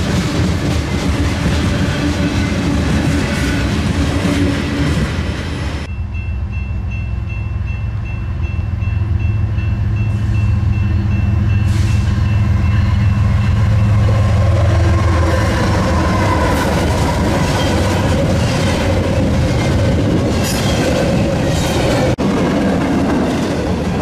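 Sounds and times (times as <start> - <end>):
diesel locomotive engine drone: 0.0 - 24.0
thin high ringing note: 5.9 - 14.1
train wheels clattering on rail joints: 15.5 - 24.0.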